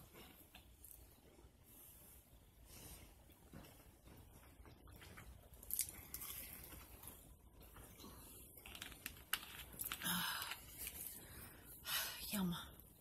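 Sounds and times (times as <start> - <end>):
small clicks and crinkles: 3.5 - 11.4.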